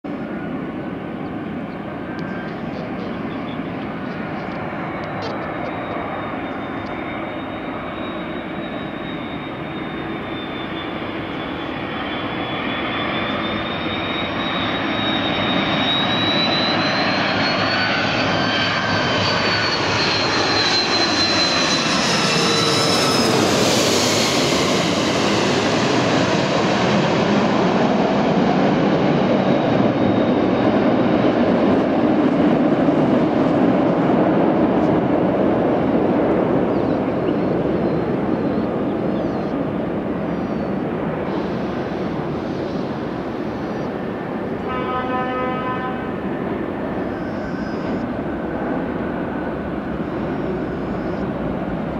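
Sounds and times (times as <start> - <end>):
jet airliner passing overhead: 0.1 - 51.9.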